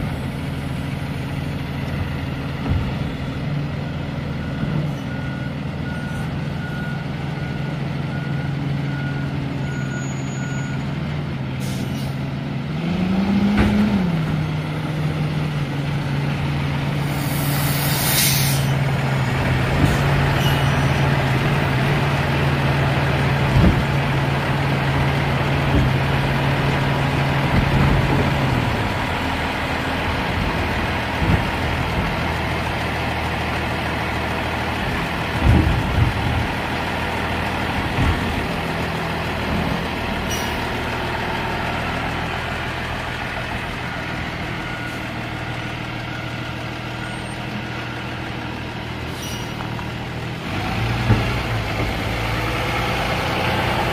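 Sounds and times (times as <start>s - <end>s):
diesel engine humming: 0.0s - 53.9s
clunks and knocks of truck arm: 2.0s - 3.3s, 13.4s - 14.4s, 23.2s - 24.6s, 25.4s - 29.0s, 30.1s - 32.4s, 34.7s - 40.0s, 50.9s - 52.4s.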